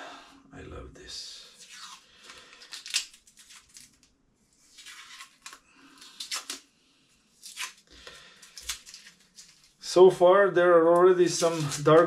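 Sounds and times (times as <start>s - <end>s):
tape being peeled off: 1.5s - 6.7s, 7.3s - 9.8s, 10.9s - 12.0s.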